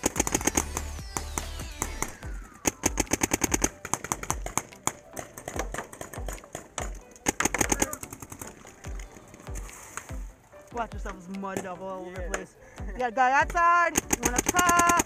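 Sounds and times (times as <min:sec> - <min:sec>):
paintball markers firing rapidly: 0:00.0 - 0:08.6, 0:13.6 - 0:15.0.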